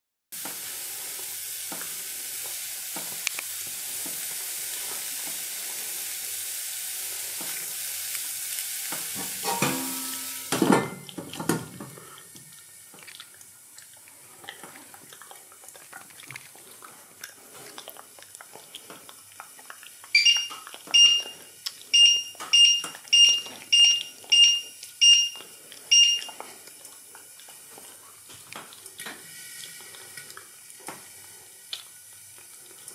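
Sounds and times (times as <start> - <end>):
boiling pot hissing: 0.4 - 14.6, 27.2 - 32.9
glass pot lid clattering: 9.4 - 10.6
short high beeps: 20.2 - 21.4, 22.0 - 26.3.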